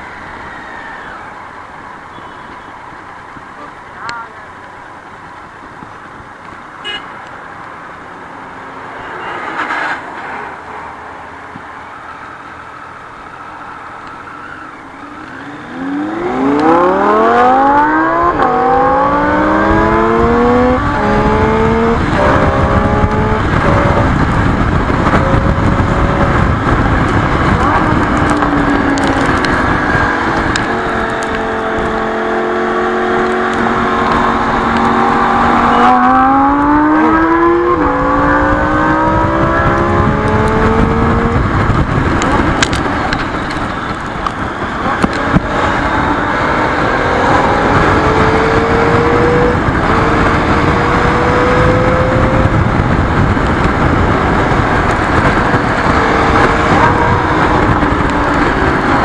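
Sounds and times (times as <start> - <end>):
wind rush: 7.4 - 59.0
motorcycle engine pulling hard: 15.4 - 59.0.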